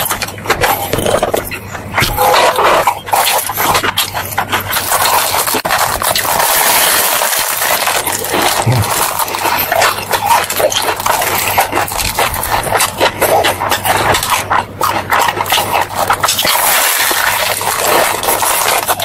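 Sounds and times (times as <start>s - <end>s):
man chewing crunchy food: 0.0s - 19.0s
wet mouth clicks: 8.0s - 17.4s.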